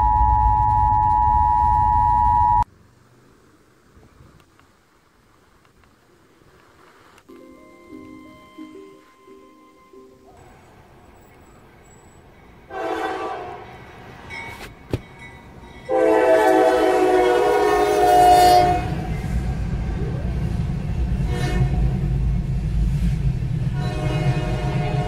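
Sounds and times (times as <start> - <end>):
train rumbling past: 7.3 - 25.0
locomotive air horn blasts: 12.7 - 13.8, 15.9 - 19.3, 21.2 - 22.0, 23.7 - 25.0.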